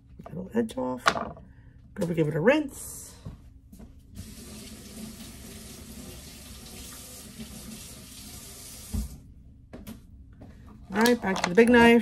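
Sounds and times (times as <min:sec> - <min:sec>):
faucet running into sink: 0:04.2 - 0:09.2.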